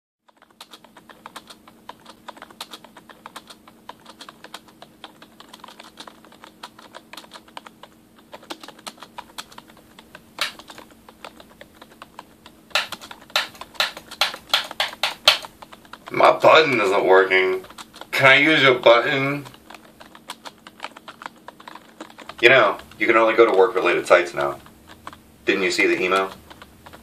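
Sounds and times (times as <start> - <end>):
faint steady hum: 0.3 - 27.0
typing on computer keyboard: 0.3 - 27.0.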